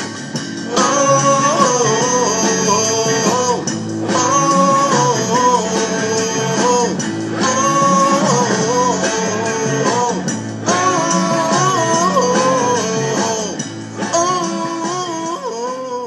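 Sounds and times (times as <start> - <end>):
backing track with guitar: 0.0 - 16.0
man singing into microphone: 0.7 - 16.0.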